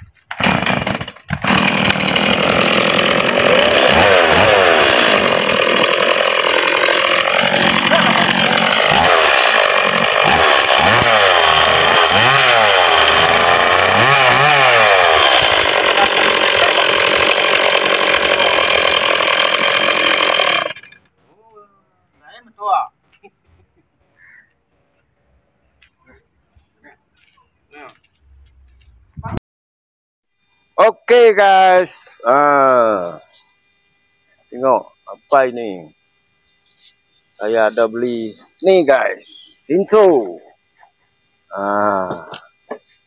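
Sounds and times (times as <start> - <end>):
chainsaw revving: 0.3 - 21.1, 31.6 - 43.0.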